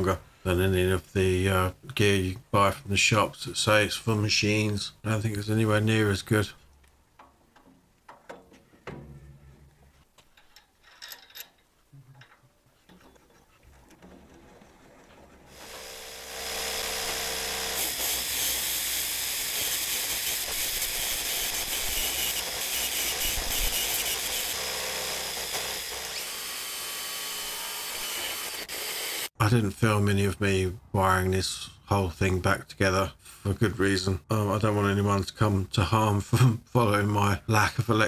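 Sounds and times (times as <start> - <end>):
metal parts clicking: 10.2 - 14.4
drill wire brush scrubbing metal: 15.5 - 29.3.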